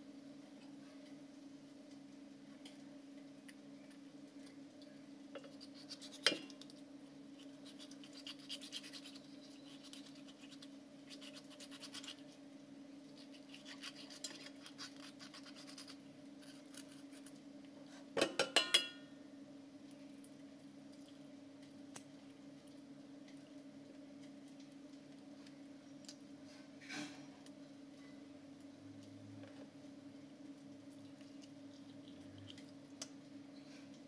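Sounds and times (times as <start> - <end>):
fingers scraping wet fish skin: 5.4 - 6.3, 7.4 - 12.3, 13.1 - 17.4.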